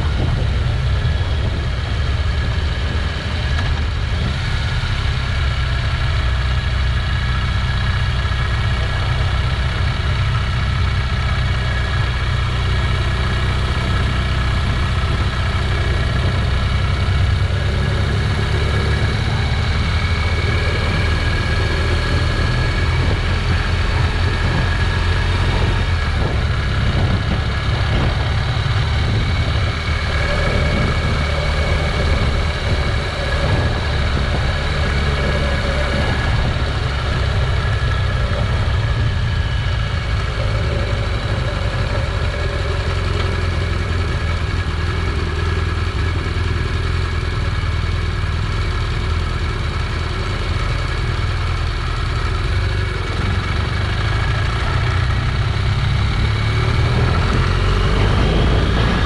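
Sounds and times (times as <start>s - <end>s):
wind rushing over microphone: 0.0s - 5.5s, 13.8s - 44.5s, 52.8s - 59.0s
motorcycle engine running: 0.0s - 59.0s.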